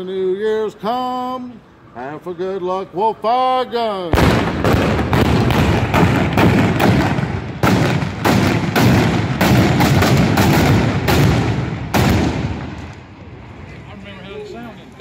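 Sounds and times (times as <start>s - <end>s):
musket shots echoing: 4.2s - 13.1s.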